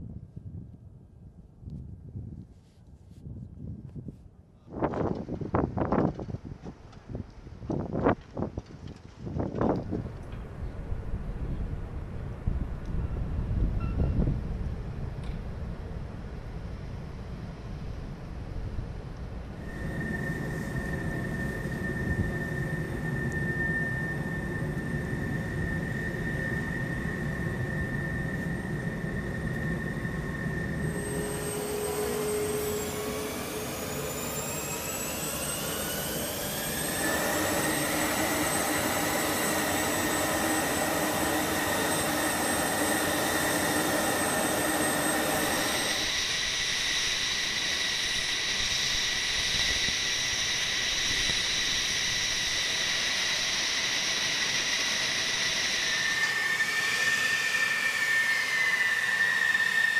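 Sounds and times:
jet engine whining: 19.5s - 59.9s
rushing noise: 19.5s - 59.9s.

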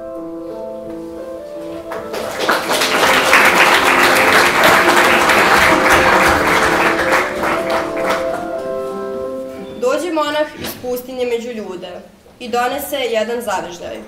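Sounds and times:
background music with held notes: 0.0s - 10.6s
audience applauding: 1.9s - 8.6s.

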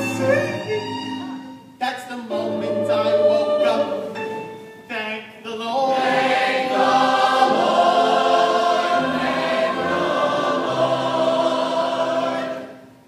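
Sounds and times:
chorus singing with accompaniment: 5.8s - 13.0s.

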